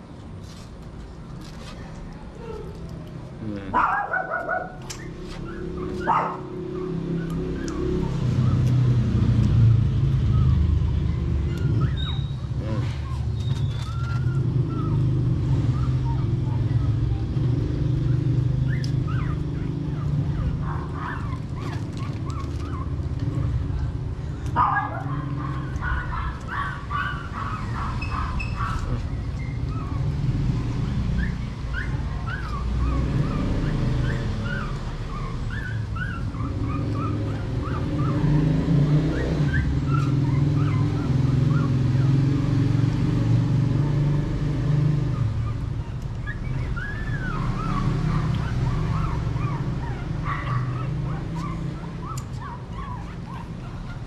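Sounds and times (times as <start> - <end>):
puppies whining and squeaking: 4.8 - 8.8, 10.1 - 23.6, 24.6 - 42.2, 45.1 - 54.0.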